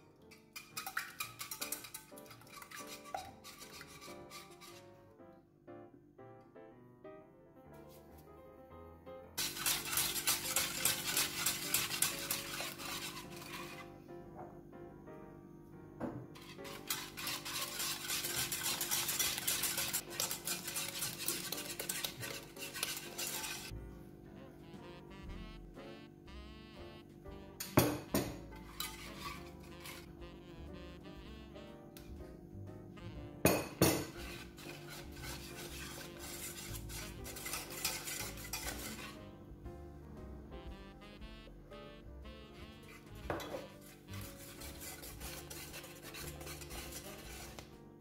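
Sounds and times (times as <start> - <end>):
wire whisk beating in saucepan: 0.2 - 4.9, 9.4 - 13.9, 16.4 - 23.7, 27.6 - 30.1, 33.4 - 39.3, 42.8 - 47.8
metal spoon knocking: 0.6 - 3.4.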